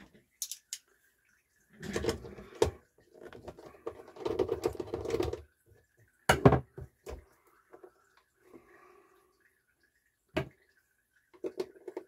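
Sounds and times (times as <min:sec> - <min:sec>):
metal parts clicking and rattling: 0:00.4 - 0:00.8.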